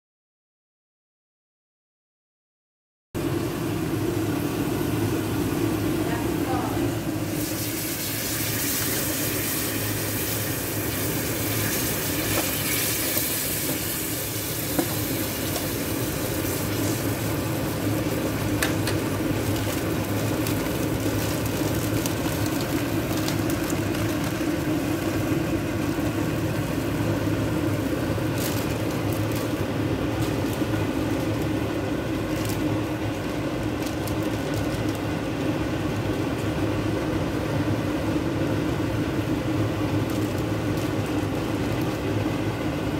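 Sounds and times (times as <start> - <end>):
constant low hum: 3.2 - 42.9
sauce sizzling and bubbling: 7.0 - 33.8.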